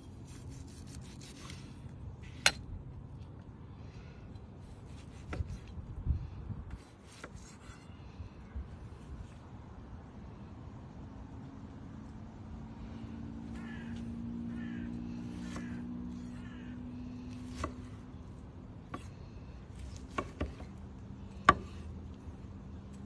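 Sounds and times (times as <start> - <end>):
knife slicing steak: 0.3 - 1.7.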